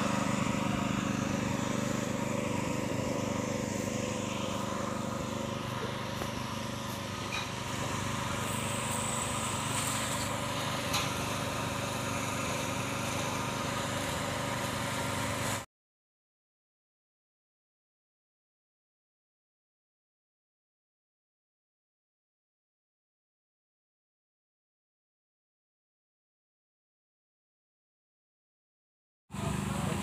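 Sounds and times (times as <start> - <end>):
small engine droning: 0.0 - 15.7, 29.3 - 30.0.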